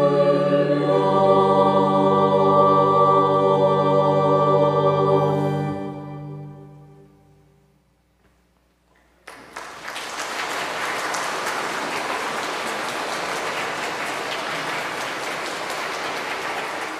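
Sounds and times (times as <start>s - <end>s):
organ chord: 0.0s - 8.0s
congregation applauding: 9.2s - 16.9s.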